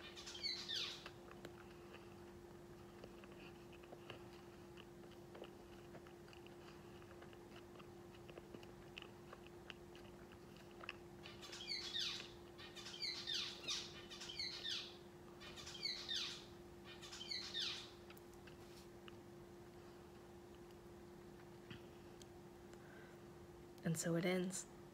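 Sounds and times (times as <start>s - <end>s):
mouth chewing: 0.8s - 13.0s.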